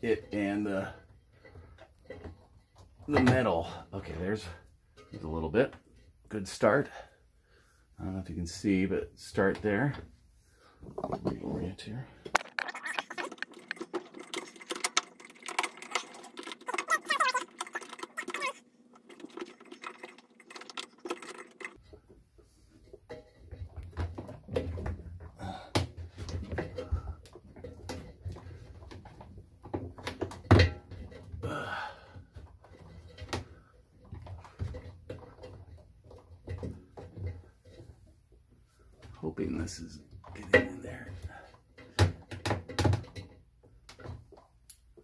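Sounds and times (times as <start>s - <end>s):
rubber gasket rubbing and clicking: 12.4s - 21.8s
rubber squeaks: 15.9s - 18.6s.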